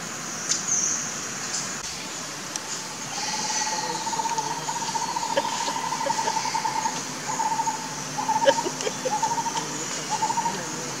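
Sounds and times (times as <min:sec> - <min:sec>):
high insect buzz: 0:03.0 - 0:08.6
rapid pulsing animal call: 0:03.1 - 0:11.0.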